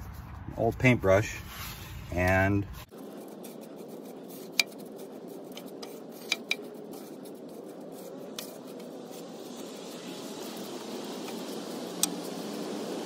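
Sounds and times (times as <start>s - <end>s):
brush sweeping ash: 1.4s - 13.0s.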